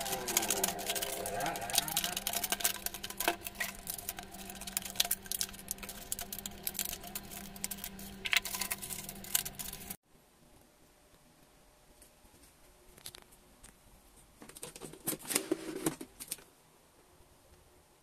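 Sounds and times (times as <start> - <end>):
plastic crinkling: 0.0 - 10.0
scissors snipping plastic: 0.0 - 10.0
low hum: 0.0 - 11.9.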